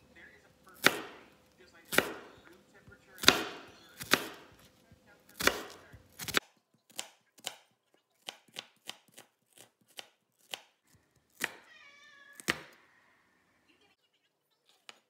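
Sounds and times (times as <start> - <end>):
knife chopping on wooden board: 0.7 - 11.7, 12.4 - 12.8
cat meowing: 11.4 - 13.4.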